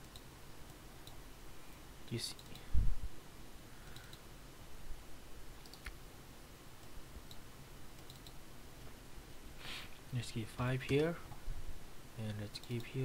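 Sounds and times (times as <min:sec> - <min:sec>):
computer mouse clicks: 0:00.0 - 0:01.2, 0:02.3 - 0:02.7, 0:03.8 - 0:04.2, 0:05.6 - 0:06.0, 0:06.8 - 0:08.4, 0:12.5 - 0:13.0.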